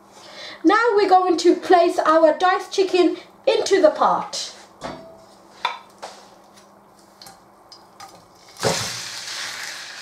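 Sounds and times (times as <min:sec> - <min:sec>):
chicken sizzling in a wok: 0:08.4 - 0:10.0.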